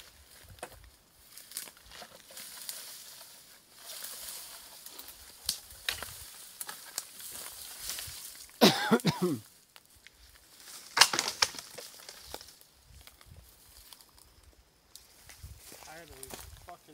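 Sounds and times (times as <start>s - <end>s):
dry branches rustling and crackling: 0.0s - 16.9s
branch snapping: 4.1s - 8.6s, 9.7s - 14.0s.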